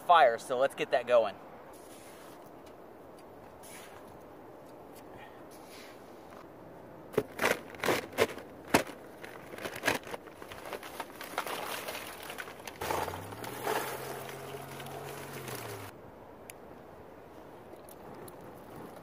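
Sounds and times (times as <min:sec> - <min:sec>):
charcoal lumps clattering: 0:07.2 - 0:15.9
paper sack crinkling: 0:07.2 - 0:15.9.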